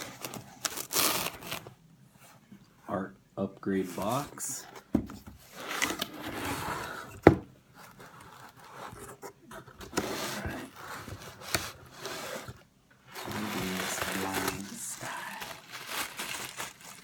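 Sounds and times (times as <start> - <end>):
paper rustling: 7.8 - 17.0.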